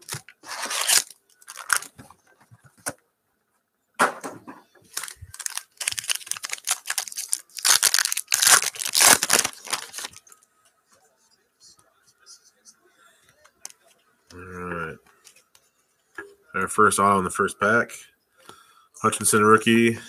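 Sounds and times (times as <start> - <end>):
foil pack tearing open: 0.0 - 2.0, 4.9 - 10.2
foil wrappers crinkling: 0.0 - 2.0, 4.9 - 10.4.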